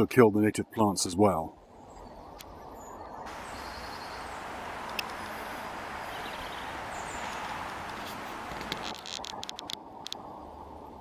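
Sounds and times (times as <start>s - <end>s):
rushing outdoor background noise: 1.6s - 11.0s
faint bird chirps: 1.8s - 4.6s.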